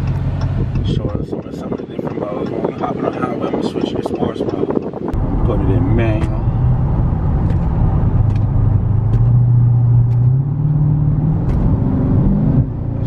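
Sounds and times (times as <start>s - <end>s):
car engine accelerating: 5.0s - 13.0s.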